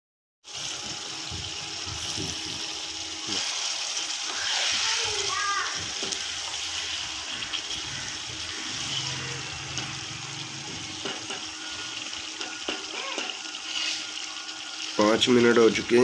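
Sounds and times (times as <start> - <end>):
chicken sizzling in a wok: 0.4 - 16.0
spatula knocking against pan: 12.4 - 13.4.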